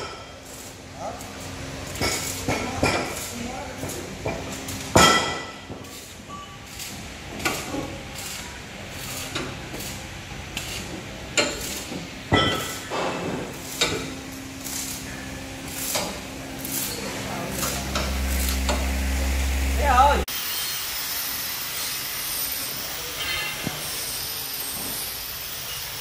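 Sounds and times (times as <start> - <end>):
hammer clanking on steel: 3.8 - 6.6, 11.3 - 14.1
steady low hum: 12.2 - 20.3.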